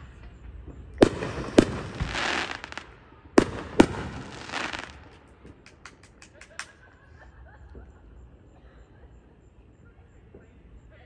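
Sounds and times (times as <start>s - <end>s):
fireworks bangs: 0.0s - 6.7s
fireworks crackling: 0.0s - 6.8s.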